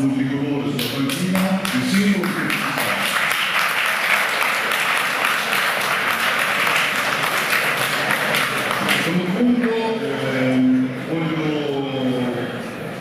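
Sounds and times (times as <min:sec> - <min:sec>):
audience applause: 0:00.8 - 0:09.1.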